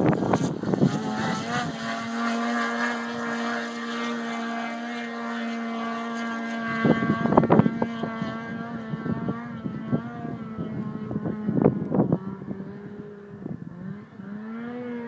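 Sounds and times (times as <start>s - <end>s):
snowmobile engine running: 0.0s - 15.0s
wind buffeting microphone: 0.0s - 15.0s.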